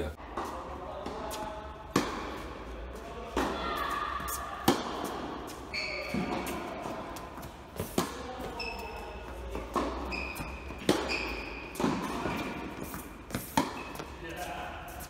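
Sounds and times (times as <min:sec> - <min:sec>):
ball impacts on hard court: 0:01.9 - 0:02.5, 0:03.3 - 0:05.3, 0:07.4 - 0:08.6, 0:09.4 - 0:14.1
shoe squeaks: 0:05.5 - 0:06.6, 0:07.8 - 0:14.2.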